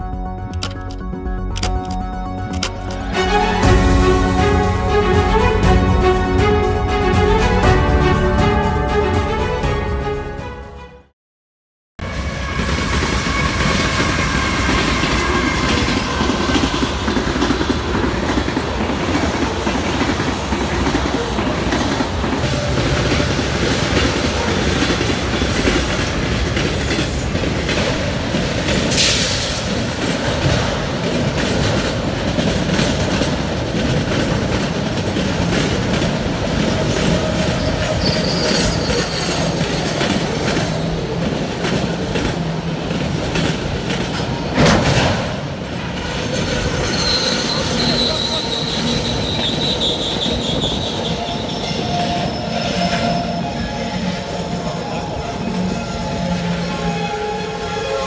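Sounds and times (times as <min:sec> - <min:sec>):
diesel locomotive engine: 0:00.0 - 0:10.2, 0:12.0 - 0:58.0
train wheels rumbling and clattering: 0:12.1 - 0:58.0
high wheel squeals: 0:36.9 - 0:40.2, 0:46.2 - 0:58.0.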